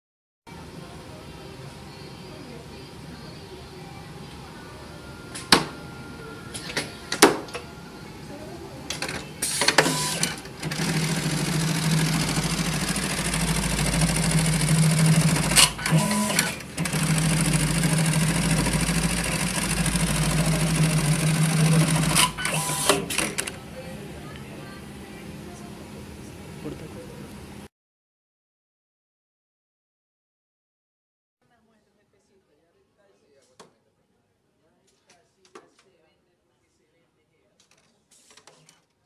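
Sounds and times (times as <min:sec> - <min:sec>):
sewing machine stitching: 0:08.9 - 0:23.5.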